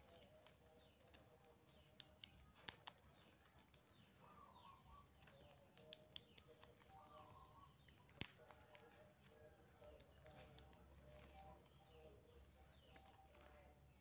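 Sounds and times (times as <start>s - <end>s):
nail nippers clicking: 1.9s - 3.9s, 5.2s - 6.7s, 7.8s - 8.8s.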